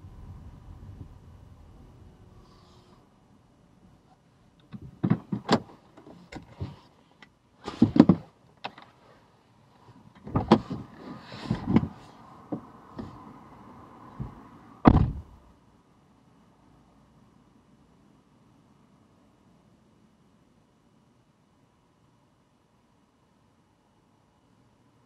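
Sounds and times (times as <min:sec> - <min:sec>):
car door opening: 0:04.6 - 0:06.8, 0:07.7 - 0:08.8, 0:10.2 - 0:13.2, 0:14.2 - 0:15.4
car door shutting: 0:10.2 - 0:13.2, 0:14.2 - 0:15.4.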